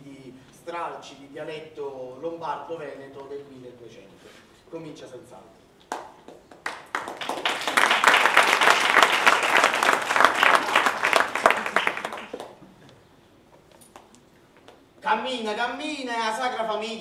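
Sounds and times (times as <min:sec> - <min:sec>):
audience applauding: 0:05.9 - 0:12.6.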